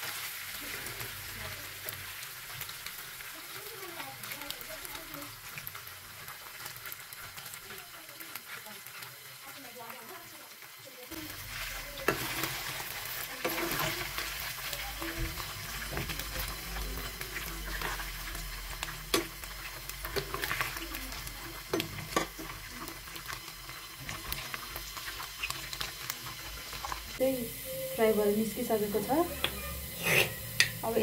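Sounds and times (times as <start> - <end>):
food sizzling in hot oil: 0.0 - 31.0
metal spatula scraping a pan: 11.3 - 20.8, 21.6 - 26.0, 27.6 - 31.0.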